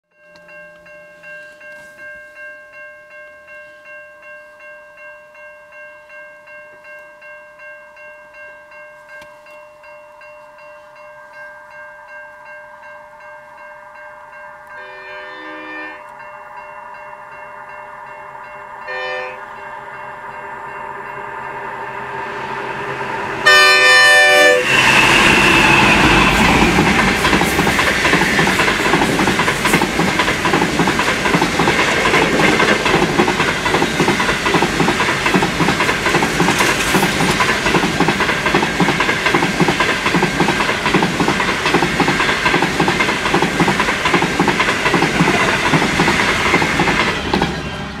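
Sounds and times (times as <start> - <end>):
train horn blast: 14.6 - 16.2, 18.8 - 19.6, 23.4 - 26.6
train wheels on rails: 15.5 - 48.0.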